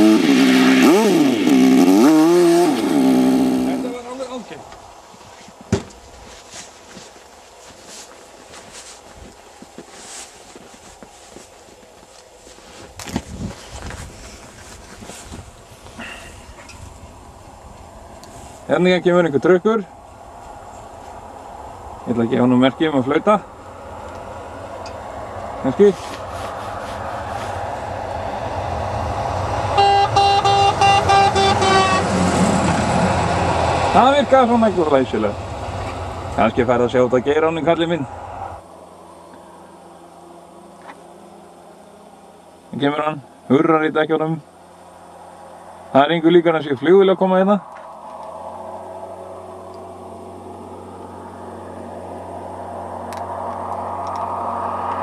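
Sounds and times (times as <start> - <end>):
truck engine and tyre noise: 0.0 - 55.0
vehicle approaching: 0.0 - 55.0
truck horn short toots: 29.7 - 32.3.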